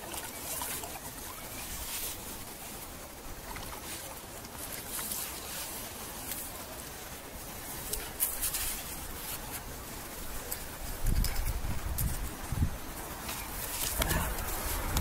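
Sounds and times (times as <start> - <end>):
small crackles: 0.0 - 15.0
steady outdoor hiss: 0.0 - 15.0
scuffing and scraping in wet sand: 1.4 - 2.9, 7.7 - 11.0.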